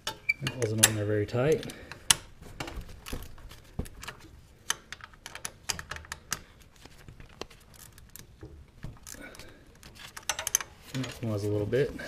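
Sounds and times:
hand wrench clicking on bolts: 4.0 - 6.6, 9.0 - 11.2.

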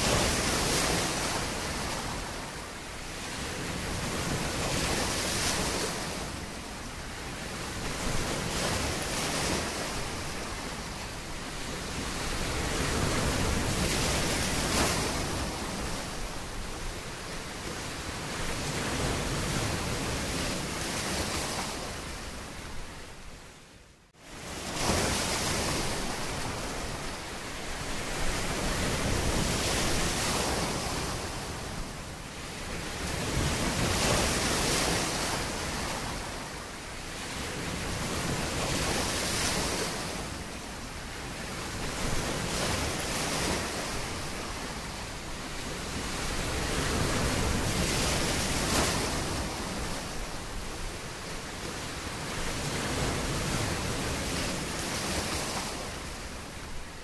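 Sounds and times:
sea waves washing on shore: 0.0 - 57.0.

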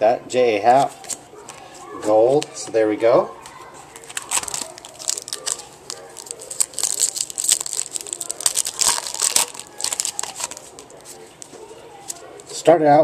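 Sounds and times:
foil wrapper tearing and crinkling: 3.9 - 12.2.

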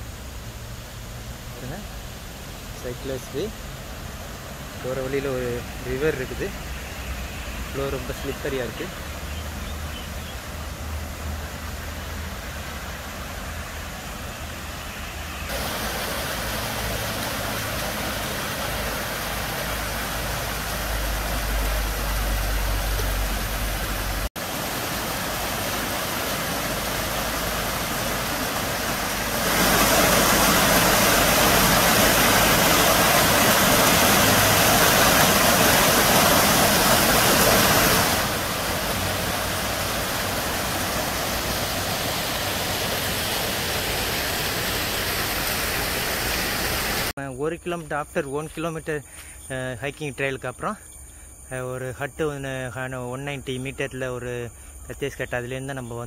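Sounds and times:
water rushing down concrete steps: 1.2 - 14.8, 15.4 - 47.2.

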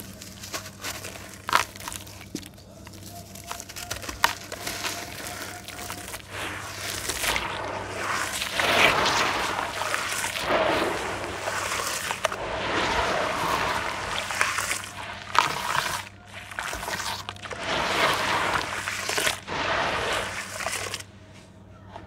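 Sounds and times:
hands squeezing wet clay: 0.0 - 21.2
water sloshing and splashing: 4.3 - 21.2.

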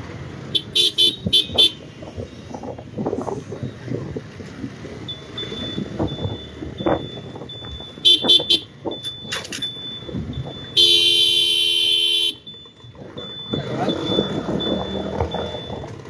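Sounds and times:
road traffic: 0.0 - 16.0
motorcycle horn beeping: 0.5 - 1.9, 8.0 - 9.7, 10.7 - 12.5
wind rumble: 1.2 - 10.8
faint high-pitched beeping: 5.0 - 11.0, 12.3 - 16.0.

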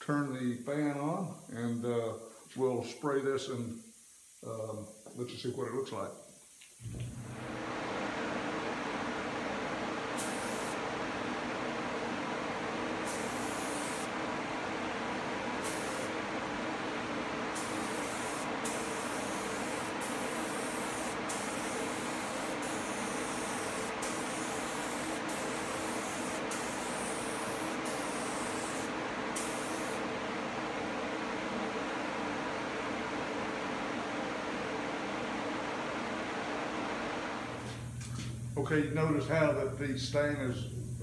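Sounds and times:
exhaust fan rushing: 6.8 - 41.0
spray gun hissing: 10.2 - 10.9, 13.0 - 14.2, 15.6 - 16.3, 17.5 - 30.1.

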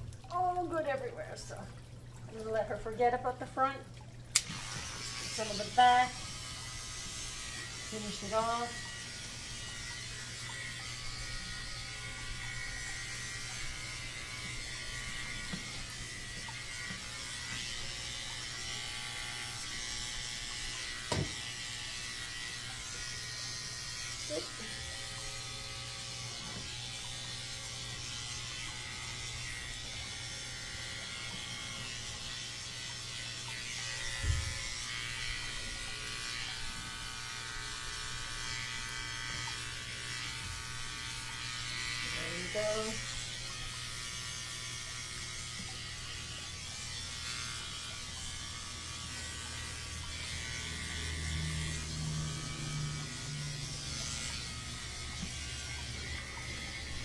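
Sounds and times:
electric clippers running: 4.3 - 57.0.

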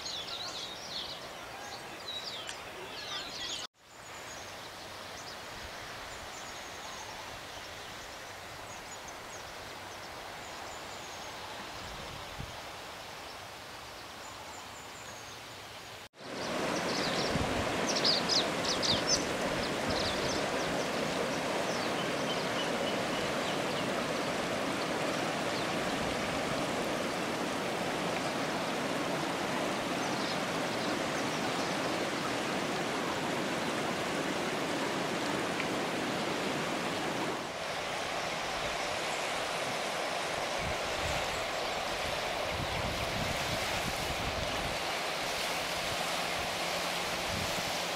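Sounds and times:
running water rushing: 15.4 - 47.9.

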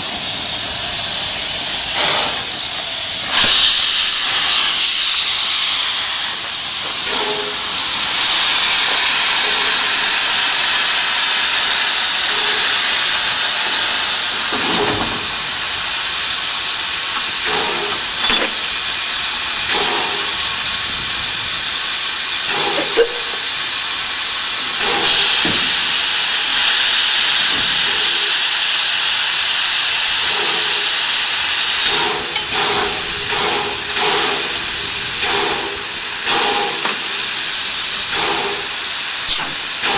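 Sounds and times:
steam locomotive venting steam: 0.0 - 39.9.

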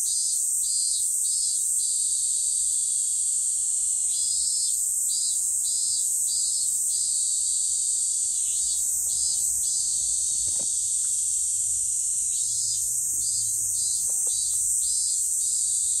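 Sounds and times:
cicadas droning: 0.0 - 16.0
lower pulsing cicada call: 0.0 - 16.0.

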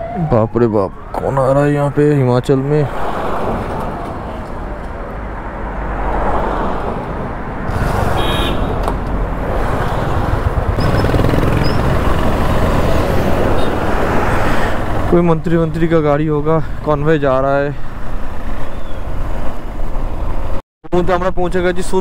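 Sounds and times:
cars driving past: 0.0 - 15.9
wind noise: 2.8 - 15.2
motorcycle engine: 7.7 - 13.9.

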